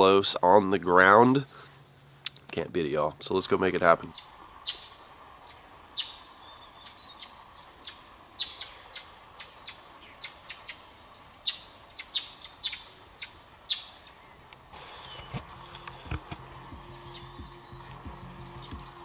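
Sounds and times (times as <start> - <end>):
birds chirping: 3.3 - 19.0.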